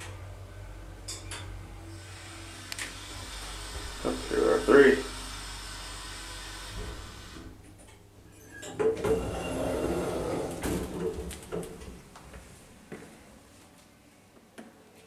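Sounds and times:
sliding doors opening: 2.0s - 12.4s.

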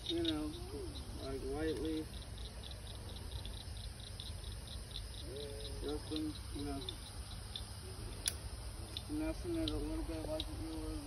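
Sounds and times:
crickets chirping: 0.0s - 11.0s
faint pitched sounds: 0.0s - 11.0s
sharp click: 8.2s - 9.8s.

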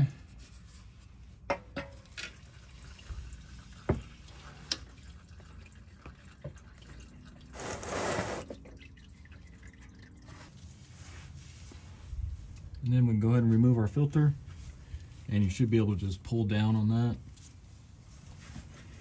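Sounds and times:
fluid dripping into a pan: 1.9s - 7.5s.

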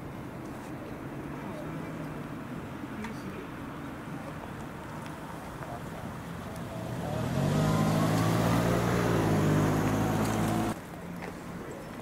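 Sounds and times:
vehicle engine running: 5.6s - 10.8s.

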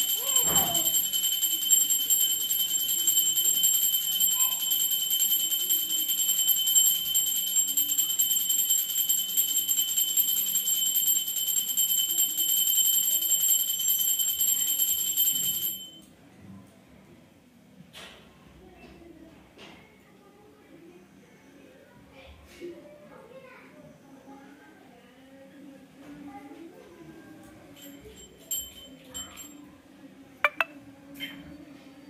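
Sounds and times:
brass hand bell ringing: 0.0s - 16.0s.

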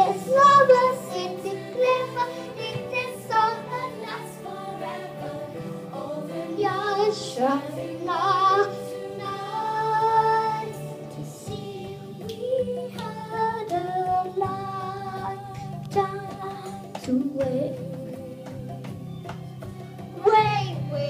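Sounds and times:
girl singing into a microphone: 0.0s - 4.2s, 11.5s - 18.5s
backing music: 0.0s - 21.0s.

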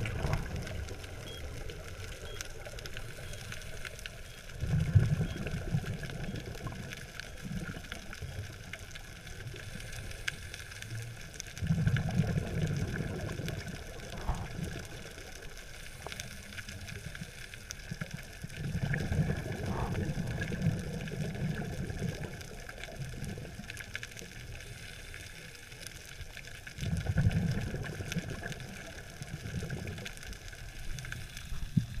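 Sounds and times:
underwater bubbling: 0.0s - 32.0s
underwater hiss: 9.4s - 17.8s, 24.4s - 25.9s.

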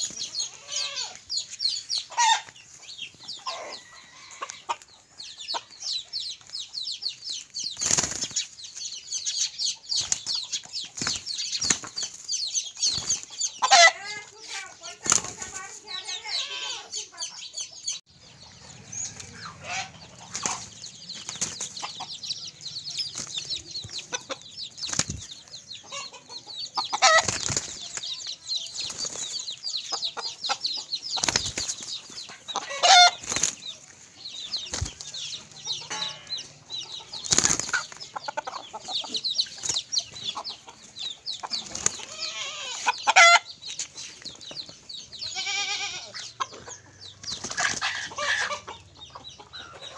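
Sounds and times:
high chirping: 5.1s - 49.9s
chicken wings flapping: 7.8s - 8.4s, 15.0s - 15.6s, 27.0s - 28.1s, 31.2s - 32.4s, 37.2s - 38.0s.

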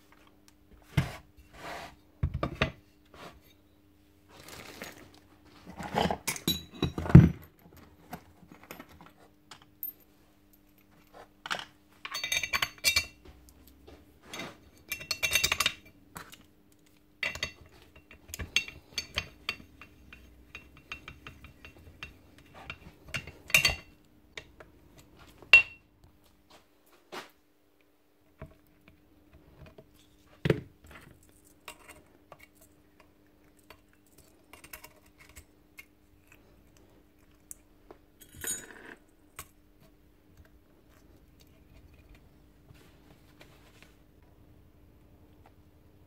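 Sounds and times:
metal parts clinking on workbench: 11.5s - 13.2s.

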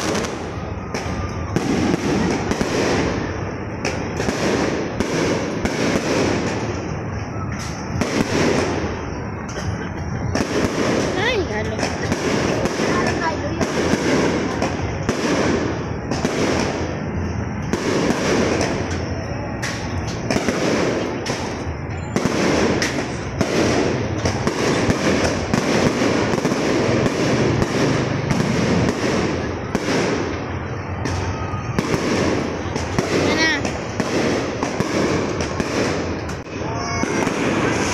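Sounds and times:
fireworks bangs and crackles: 0.0s - 37.9s.

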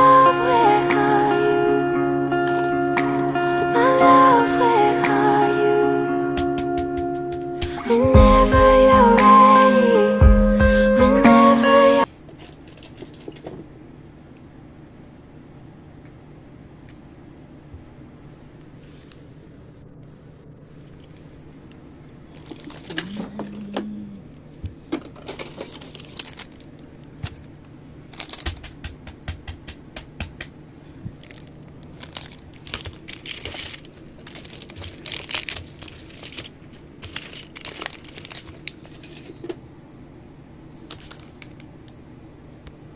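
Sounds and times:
plastic packet crinkling: 22.2s - 23.5s, 25.1s - 28.8s, 31.1s - 39.4s, 40.9s - 41.7s.

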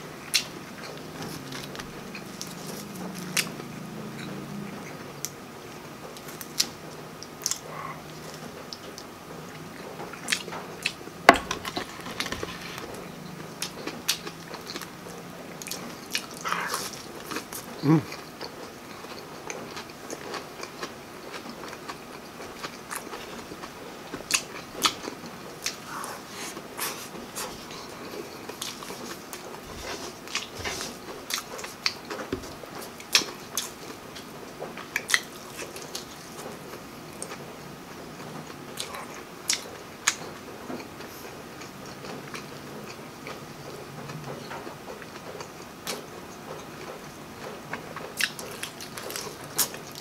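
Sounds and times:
person chewing crunchy food: 0.0s - 3.6s, 10.2s - 37.4s, 47.7s - 50.0s.

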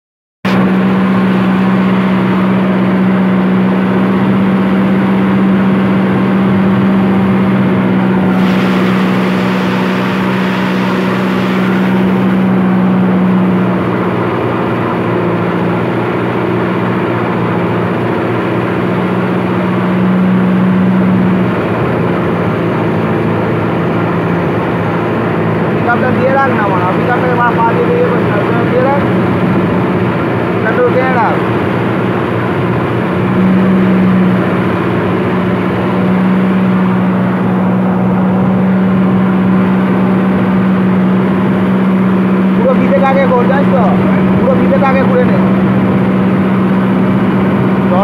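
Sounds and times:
tractor diesel engine droning: 0.5s - 48.0s
hiss: 8.3s - 12.5s.

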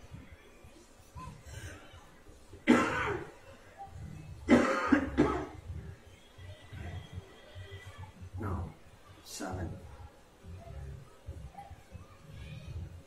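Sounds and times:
man coughing up phlegm: 2.7s - 3.3s, 4.5s - 5.6s.

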